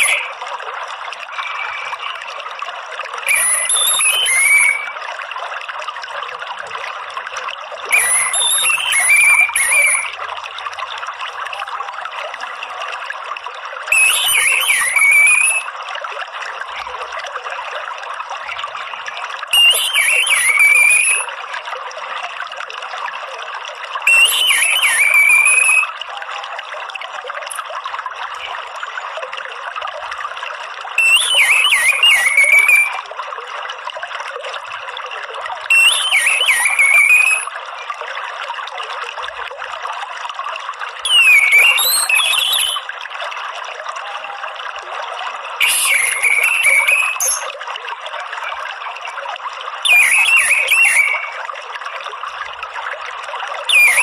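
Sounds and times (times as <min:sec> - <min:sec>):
thrush chattering call: 0:00.0 - 0:00.4, 0:01.3 - 0:02.2, 0:03.3 - 0:05.0, 0:07.9 - 0:10.2, 0:13.9 - 0:15.7, 0:19.6 - 0:21.3, 0:24.1 - 0:25.9, 0:31.0 - 0:33.0, 0:35.7 - 0:37.5, 0:41.1 - 0:42.8, 0:45.6 - 0:47.6, 0:49.9 - 0:51.4, 0:53.7 - 0:54.0
trickling water: 0:00.0 - 0:54.0.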